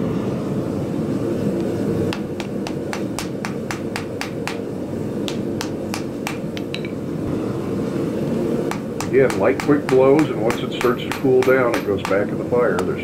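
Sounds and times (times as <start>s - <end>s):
hammer striking on an anvil: 2.1s - 4.7s, 5.3s - 7.0s, 8.7s - 13.0s.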